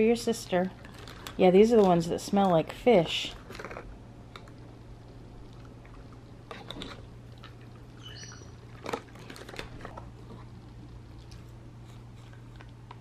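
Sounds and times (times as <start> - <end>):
dog chewing a treat: 3.4 - 13.0
high squeak: 8.0 - 8.6.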